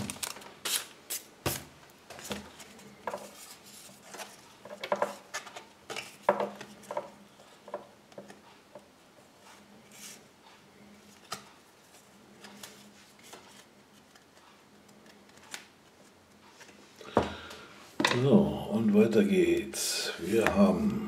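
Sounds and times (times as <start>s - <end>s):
trading cards and foil packaging handled: 0.0s - 1.3s.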